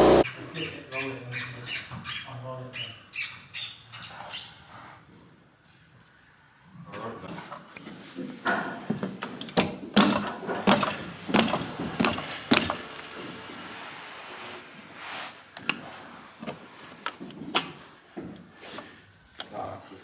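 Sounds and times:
seaming iron rubbing on carpet: 0:11.7 - 0:16.9.

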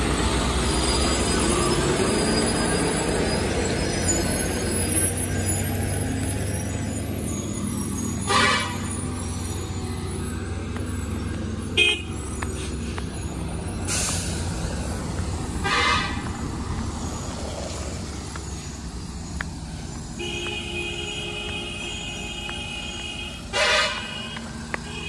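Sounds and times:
vehicle engines rumbling: 0:00.0 - 0:25.0
car horn honks: 0:08.3 - 0:08.9, 0:11.8 - 0:12.1, 0:15.6 - 0:16.3, 0:20.2 - 0:25.0
hiss: 0:13.9 - 0:14.7.

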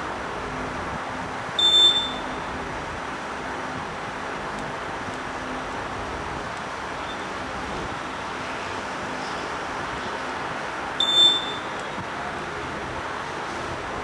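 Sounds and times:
high-pitched electronic beep: 0:01.6 - 0:02.4, 0:11.0 - 0:11.8.

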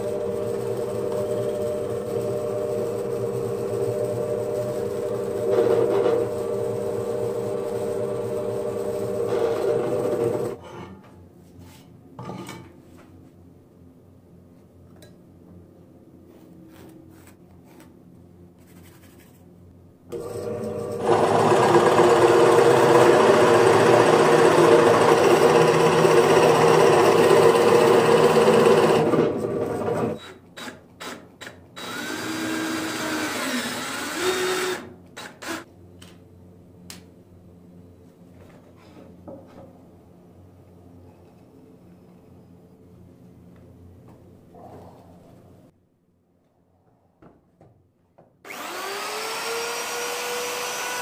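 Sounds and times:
drill press boring into wood: 0:00.0 - 0:10.6, 0:20.1 - 0:35.6, 0:48.5 - 0:51.0.

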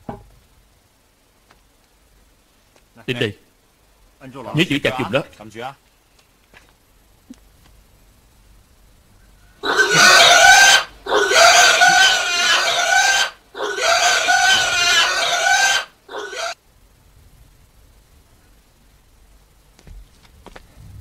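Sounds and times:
pig squealing: 0:09.6 - 0:16.6.

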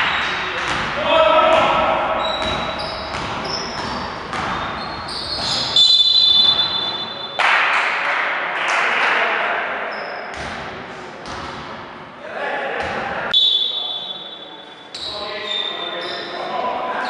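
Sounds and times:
ball bouncing on gym floor: 0:00.1 - 0:04.8
shoe squeaks on gym floor: 0:02.2 - 0:07.4, 0:13.3 - 0:17.0
referee's whistle long blast: 0:05.8 - 0:07.4, 0:13.3 - 0:14.4.

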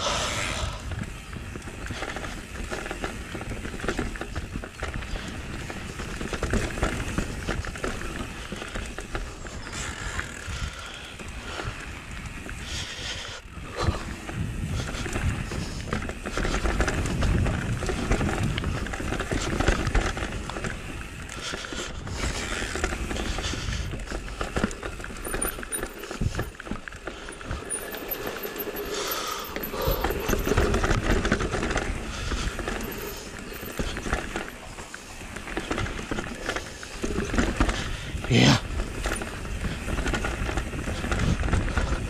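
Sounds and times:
wind rumble on microphone: 0:00.0 - 0:34.6, 0:35.2 - 0:42.0
bike rattling: 0:00.0 - 0:42.0
tyres rumbling over rocks: 0:00.1 - 0:12.9, 0:13.6 - 0:42.0.

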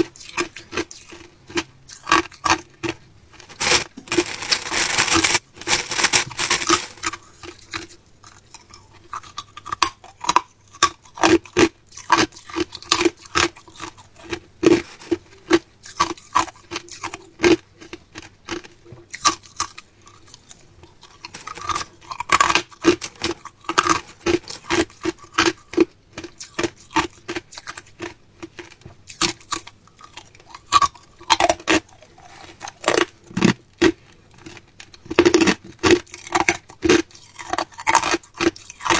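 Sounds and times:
ice crunched between teeth: 0:00.1 - 0:38.9
plastic bag crinkling: 0:02.1 - 0:07.9.

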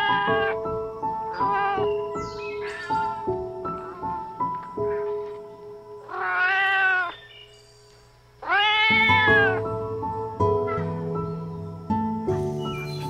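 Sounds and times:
cat meowing: 0:00.0 - 0:00.6, 0:01.3 - 0:03.2, 0:06.1 - 0:07.3, 0:08.4 - 0:09.6
background music: 0:00.0 - 0:13.0.

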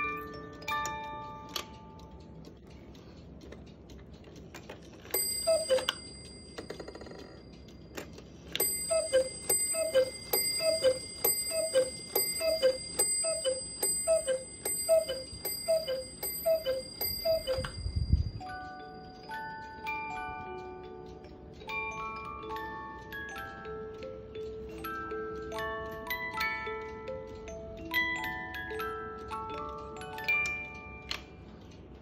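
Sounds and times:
cuckoo clock call: 0:00.0 - 0:02.7, 0:04.6 - 0:32.0
clock movement whir: 0:00.0 - 0:32.0
clock bell ring: 0:05.1 - 0:07.8, 0:08.6 - 0:21.0.

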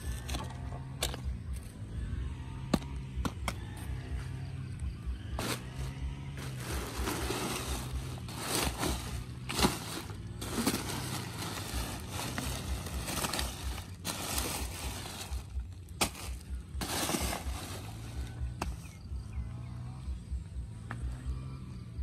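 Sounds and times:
plastic bags rustling: 0:05.4 - 0:18.7.

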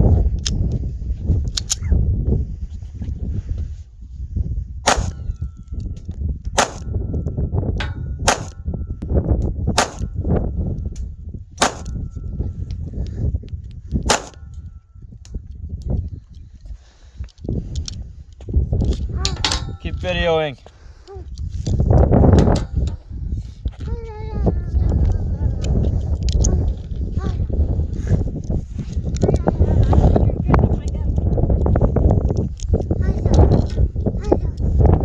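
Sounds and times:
pistol shots: 0:04.9 - 0:05.3, 0:06.6 - 0:06.9, 0:08.3 - 0:08.6, 0:09.8 - 0:10.1, 0:11.6 - 0:12.0, 0:14.0 - 0:14.5.

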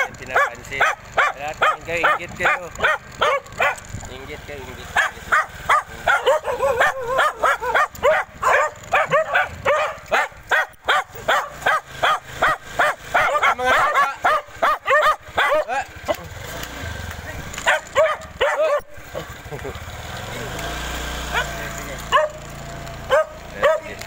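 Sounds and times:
dogs barking: 0:00.0 - 0:03.9, 0:04.8 - 0:16.4, 0:17.5 - 0:19.4, 0:21.2 - 0:24.0.

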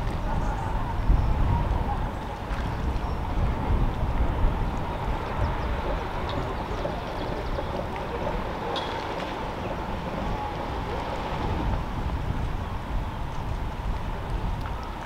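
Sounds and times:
outdoor background noise: 0:00.0 - 0:15.0
wind buffeting microphone: 0:00.0 - 0:15.0.

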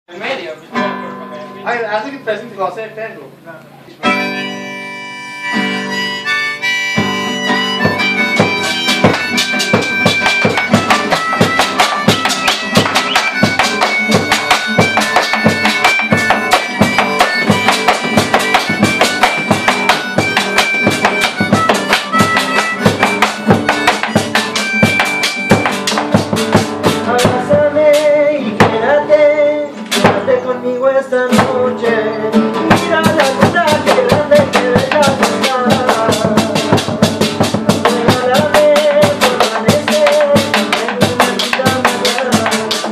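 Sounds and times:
strummed acoustic guitar: 0:00.7 - 0:02.3, 0:04.0 - 0:42.9
harmonica melody: 0:04.0 - 0:31.0, 0:31.8 - 0:42.9
drum beaten with sticks: 0:06.9 - 0:29.0, 0:29.9 - 0:30.4, 0:31.3 - 0:31.8, 0:32.6 - 0:42.9.

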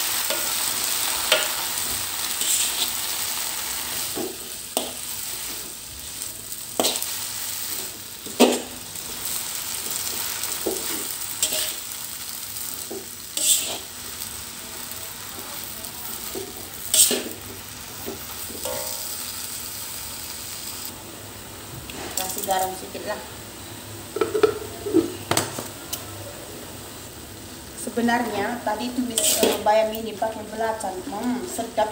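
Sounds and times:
greens sizzling in a wok: 0:00.0 - 0:31.9
metal spatula scraping a wok: 0:00.2 - 0:05.8, 0:06.8 - 0:08.8, 0:10.0 - 0:11.9, 0:12.8 - 0:13.9, 0:16.9 - 0:17.4, 0:29.0 - 0:29.7.

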